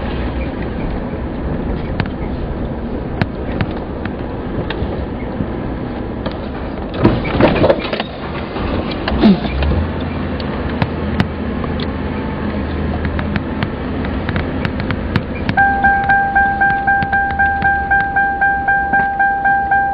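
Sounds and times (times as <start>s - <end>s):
car engine and road noise: 0.0s - 19.9s
keyboard tune: 15.6s - 19.9s.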